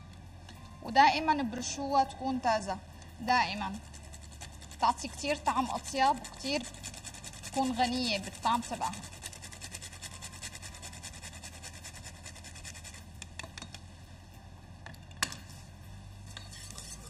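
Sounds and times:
nutmeg grating on grater: 3.2s - 13.2s.

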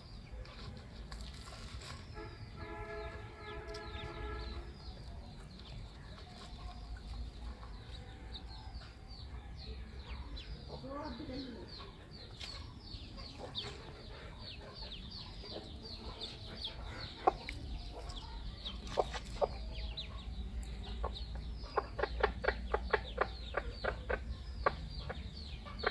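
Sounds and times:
ducklings peeping: 0.1s - 25.9s
hen clucking: 10.7s - 25.9s.

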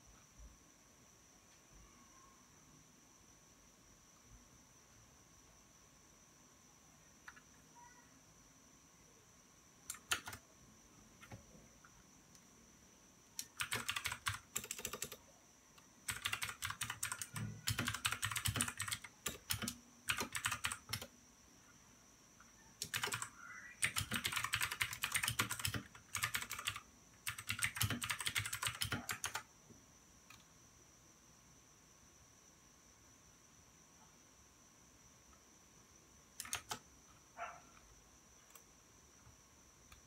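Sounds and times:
rapid keyboard key clicks: 9.9s - 10.4s, 13.4s - 15.2s, 16.1s - 21.1s, 22.8s - 29.5s, 36.4s - 36.8s.

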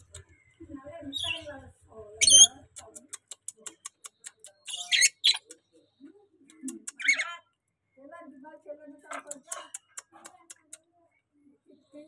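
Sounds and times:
lorikeet squawking: 2.2s - 2.5s, 4.7s - 5.5s, 6.9s - 7.5s.

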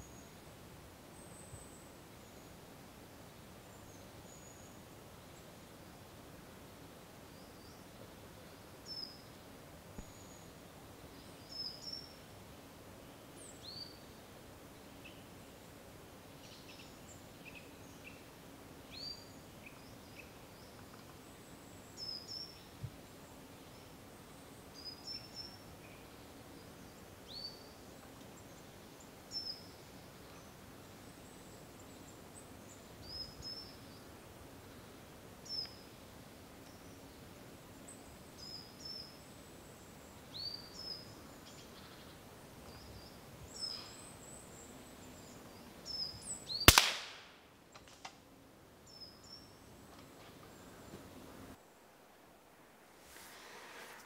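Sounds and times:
small birds chirping: 7.2s - 12.4s, 13.0s - 15.7s, 16.3s - 46.8s, 48.8s - 51.3s.

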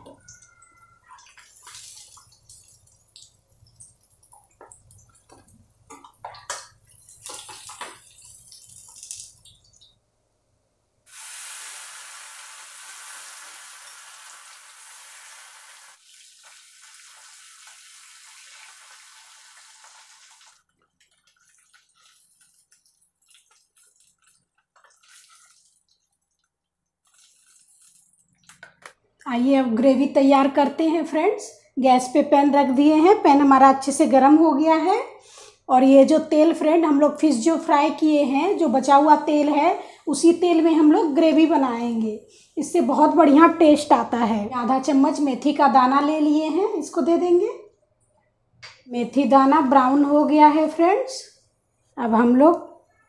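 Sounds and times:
fish sizzling in oil: 11.1s - 20.6s.

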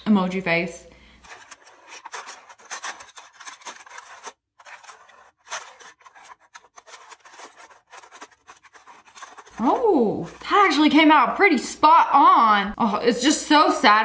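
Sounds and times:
tool scratching foil: 1.2s - 10.9s.

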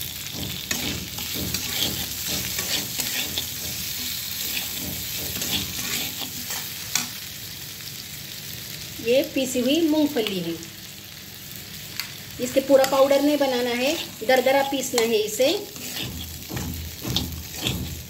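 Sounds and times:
oil sizzling: 0.0s - 18.0s
metal spatula scraping pan: 0.1s - 7.2s, 12.8s - 18.0s.

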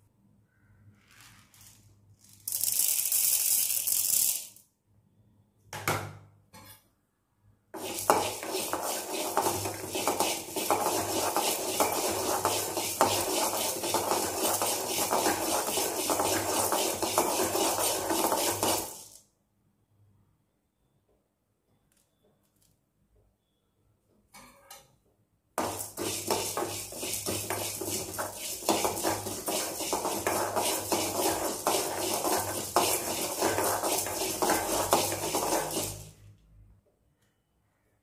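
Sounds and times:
dry lentils poured into pan: 7.8s - 19.2s, 25.6s - 36.2s
metal spoon scraping lentils: 7.8s - 19.2s, 25.6s - 36.2s.

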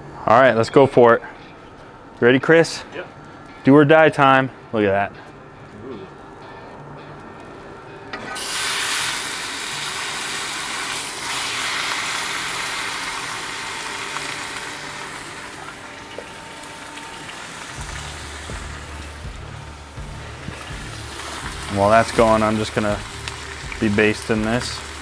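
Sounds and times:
steak sizzling in a pan: 8.3s - 25.0s.

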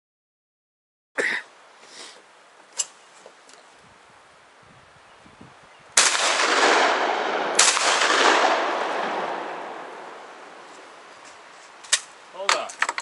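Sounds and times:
gunshots with rolling echo: 6.0s - 11.0s.

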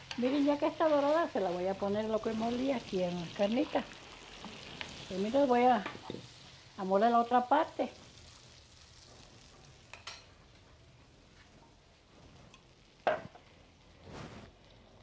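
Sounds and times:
spatula stirring: 0.0s - 2.8s
meat sizzling in a pan: 0.0s - 15.0s.

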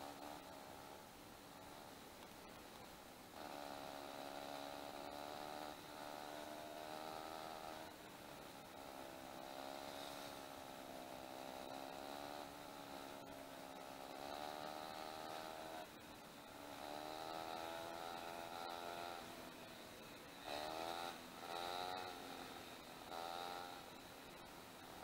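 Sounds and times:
dirt bike engine running: 0.0s - 25.0s.

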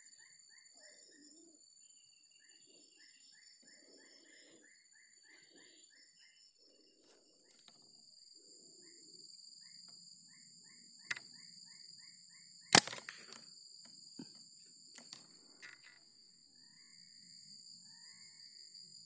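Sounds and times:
rifle shot: 12.8s - 13.4s.

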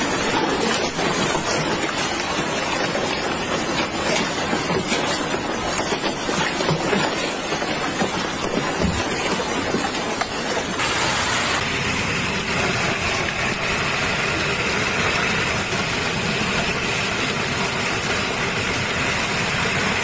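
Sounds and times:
heavy hail pelting: 0.0s - 20.0s.

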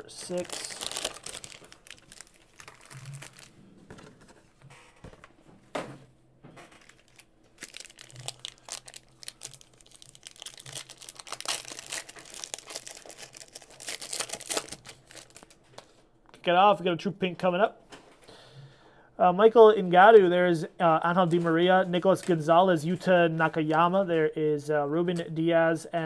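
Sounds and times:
pack tearing open: 0.0s - 3.5s, 6.8s - 15.6s
foil wrappers crinkling: 0.0s - 4.0s, 6.7s - 15.9s.

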